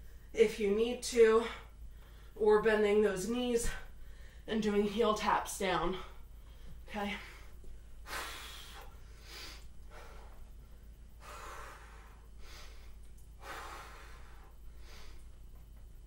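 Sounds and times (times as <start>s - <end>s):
woman breathing hard: 6.0s - 15.6s.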